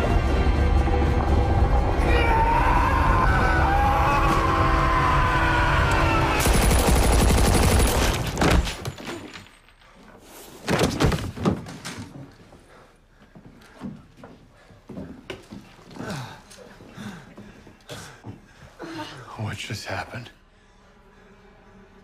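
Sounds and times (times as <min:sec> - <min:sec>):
tense film score: 0:00.0 - 0:10.2, 0:16.0 - 0:22.0
man screaming: 0:02.0 - 0:06.4
rapid gunfire: 0:06.4 - 0:08.4
loud gunshots: 0:06.4 - 0:08.6.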